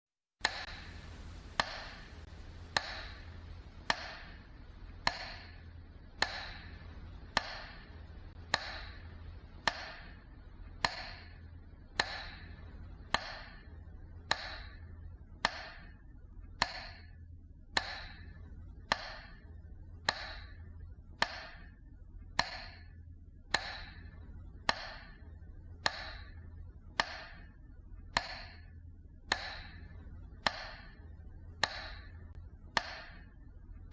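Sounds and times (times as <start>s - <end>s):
low steady hum: 0.4s - 33.9s
metronome ticks: 0.4s - 33.9s.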